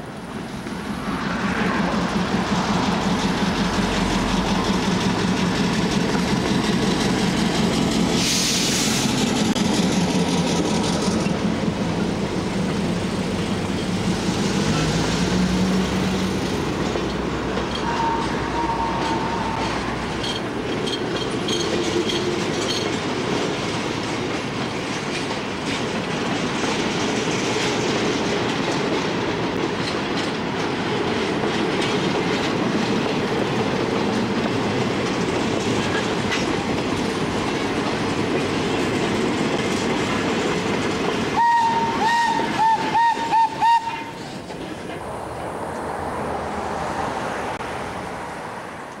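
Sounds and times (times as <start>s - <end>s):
train cars rumbling past: 0.0s - 49.0s
wheels clacking over rail joints: 0.3s - 45.1s
train whistle blasts and toots: 17.8s - 19.6s, 41.4s - 44.2s.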